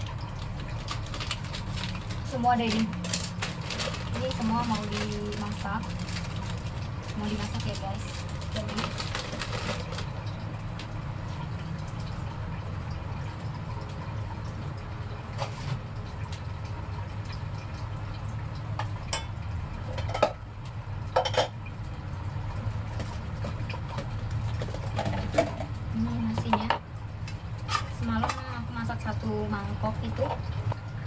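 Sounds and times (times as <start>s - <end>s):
steady low hum: 0.0s - 31.0s
pots and dishes clinking: 18.8s - 20.4s, 21.1s - 21.6s.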